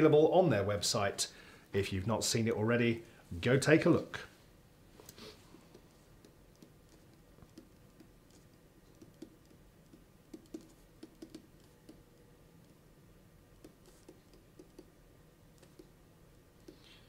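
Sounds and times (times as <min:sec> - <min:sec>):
typing on computer keyboard: 0:06.5 - 0:12.0, 0:15.6 - 0:15.9.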